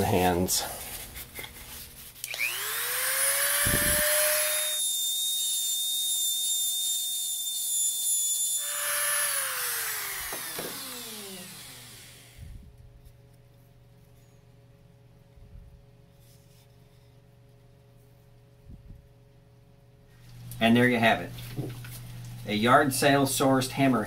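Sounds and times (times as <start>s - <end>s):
rotary tool whining: 2.2s - 12.5s.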